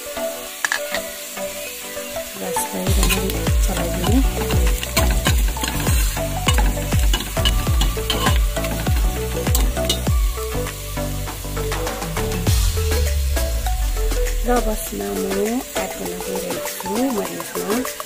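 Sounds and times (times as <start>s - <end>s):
onions sizzling in hot oil: 0.0s - 18.0s
music with bass beat: 2.2s - 18.0s
spoon stirring in pot: 2.9s - 10.1s.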